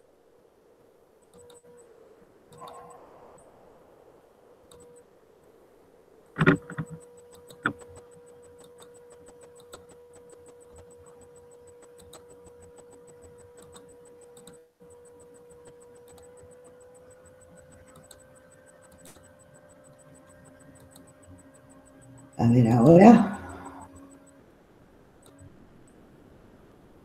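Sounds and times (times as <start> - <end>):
faint steady whine: 0.0 - 27.0
soft rapid ticking: 0.9 - 26.4
sharp clicks: 2.5 - 3.5, 4.7 - 5.1, 6.4 - 22.3.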